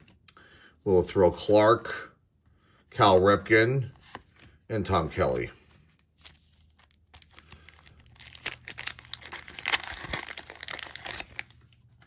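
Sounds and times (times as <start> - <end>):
paper wrapper tearing and crinkling: 5.9 - 12.0.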